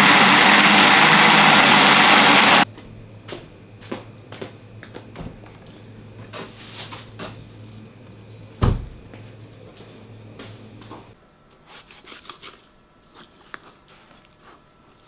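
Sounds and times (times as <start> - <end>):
electric blender grinding: 0.0 - 2.7.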